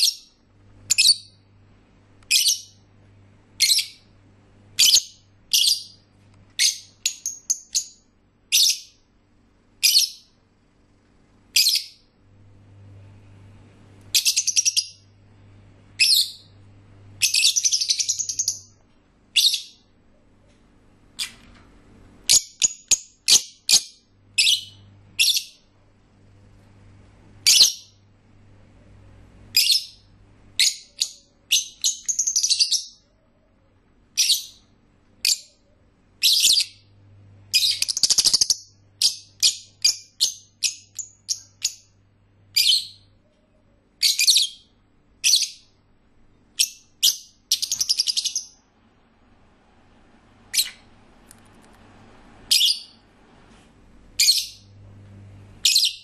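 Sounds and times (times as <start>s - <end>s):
lovebirds chirping: 0.0s - 1.5s, 2.2s - 2.9s, 3.6s - 4.2s, 4.8s - 9.0s, 9.8s - 10.4s, 11.5s - 12.2s, 14.1s - 15.2s, 16.0s - 16.6s, 17.2s - 19.9s, 22.2s - 25.7s, 27.4s - 28.0s, 29.5s - 33.3s, 34.1s - 45.8s, 46.5s - 48.7s, 52.5s - 53.0s, 54.2s - 54.7s, 55.6s - 56.0s.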